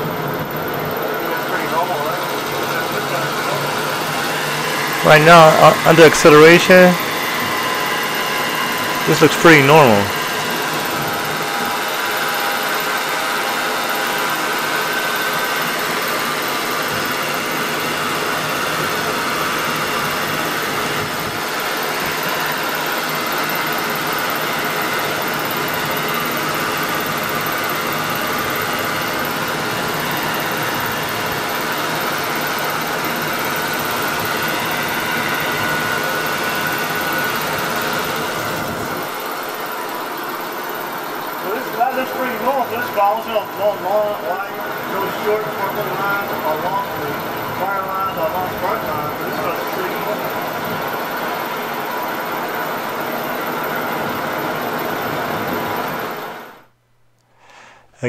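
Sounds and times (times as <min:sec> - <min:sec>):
car engine running: 0:00.0 - 0:56.5.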